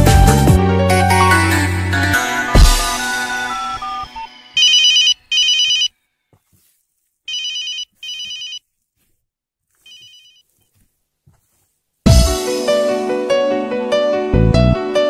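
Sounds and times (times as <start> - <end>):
electronic telephone ringtone: 2.2 - 5.9, 7.3 - 8.6, 9.9 - 10.4.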